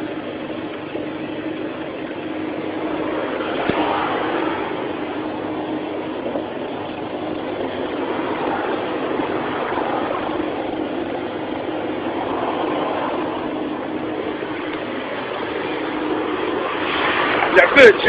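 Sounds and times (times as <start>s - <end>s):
constant hum: 0.0s - 18.0s
excavator engine running: 0.0s - 18.0s.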